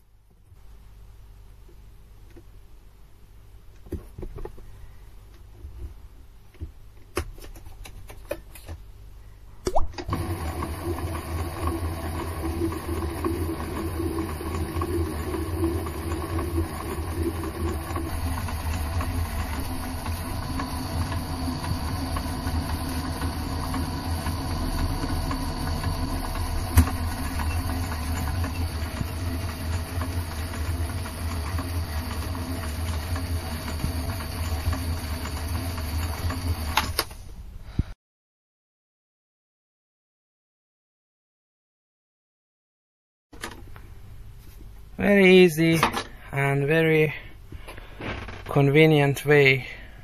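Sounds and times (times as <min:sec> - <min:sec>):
lathe running: 0:10.0 - 0:37.0.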